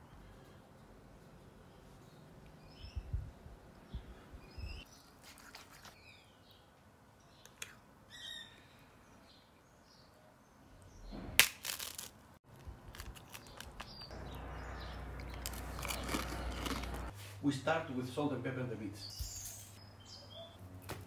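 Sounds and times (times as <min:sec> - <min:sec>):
faint bird chirps: 0:06.0 - 0:11.1, 0:19.0 - 0:20.6.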